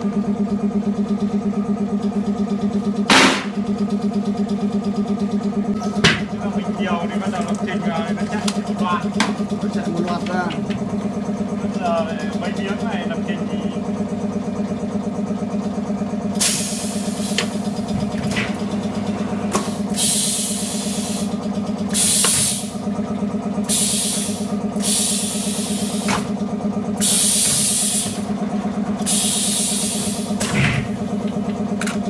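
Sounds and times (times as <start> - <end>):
cutting machine humming: 15.7 - 32.0
hissing bursts: 23.7 - 26.1.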